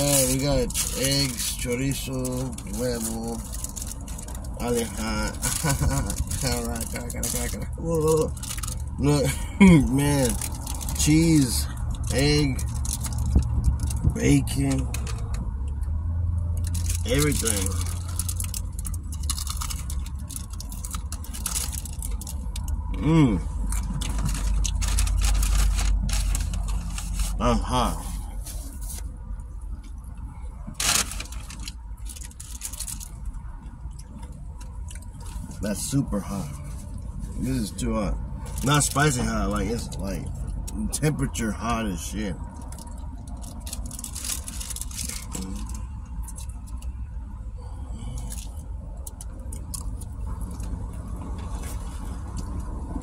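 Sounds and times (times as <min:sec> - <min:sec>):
paper wrapper crinkling: 0:00.0 - 0:08.9, 0:09.9 - 0:14.0, 0:16.6 - 0:22.7, 0:23.6 - 0:27.4, 0:30.8 - 0:33.2, 0:42.6 - 0:46.8
car engine idling: 0:00.0 - 0:53.0.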